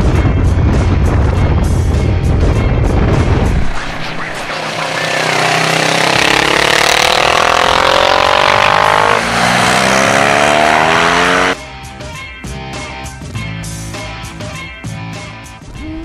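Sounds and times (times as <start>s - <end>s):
motorcycle engine accelerating: 4.3s - 11.6s
guitar music: 4.4s - 12.9s.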